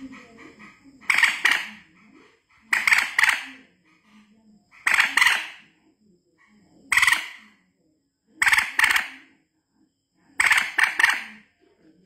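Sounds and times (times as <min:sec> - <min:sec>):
moorhen calling: 0:00.0 - 0:05.7, 0:10.4 - 0:11.5.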